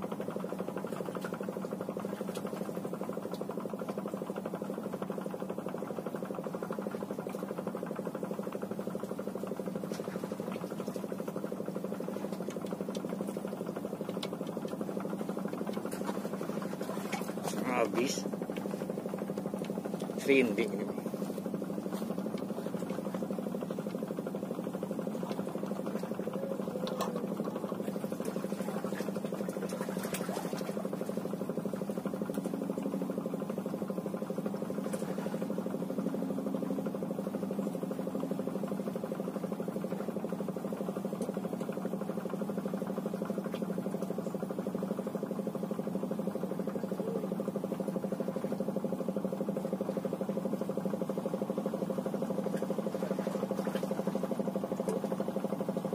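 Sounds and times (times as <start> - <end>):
mechanical hum: 0.0 - 55.9
faint ticks: 12.3 - 13.1.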